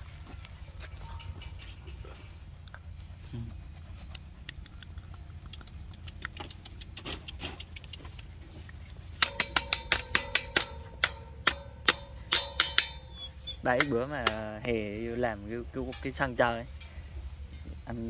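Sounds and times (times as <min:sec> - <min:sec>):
ringing metallic strikes: 0:09.2 - 0:14.4.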